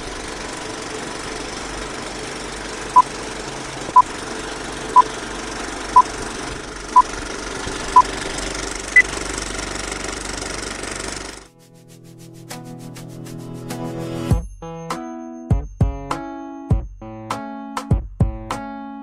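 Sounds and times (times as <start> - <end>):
film projector rattling: 0.0 - 11.5.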